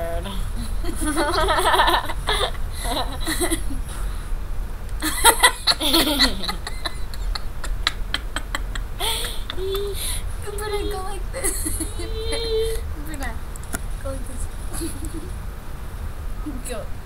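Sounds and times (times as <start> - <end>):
girls laughing and giggling: 0.6 - 4.0, 5.0 - 12.9, 14.6 - 15.4.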